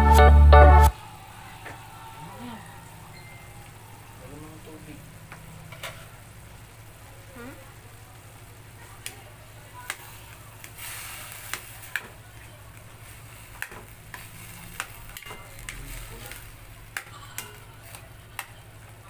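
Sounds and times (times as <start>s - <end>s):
low sizzle: 0.0s - 19.0s.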